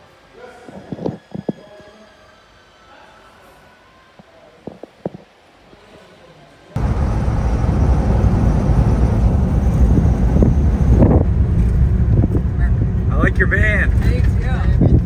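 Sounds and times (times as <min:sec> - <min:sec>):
wind and road noise: 0:06.8 - 0:15.0.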